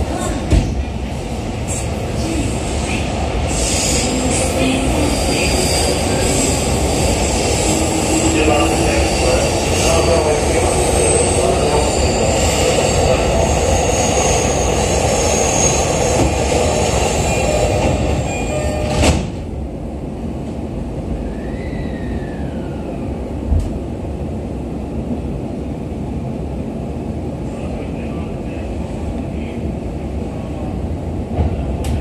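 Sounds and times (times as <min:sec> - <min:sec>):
train passing: 0:00.0 - 0:32.0
train doors shutting with thump: 0:00.1 - 0:00.9, 0:17.6 - 0:19.5, 0:23.5 - 0:23.8, 0:31.3 - 0:32.0.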